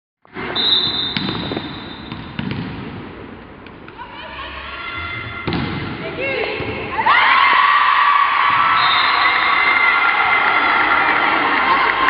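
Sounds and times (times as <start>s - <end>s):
referee's whistle: 0.6s - 2.1s, 8.7s - 9.7s
volleyball hits: 1.0s - 3.0s, 5.4s - 6.0s.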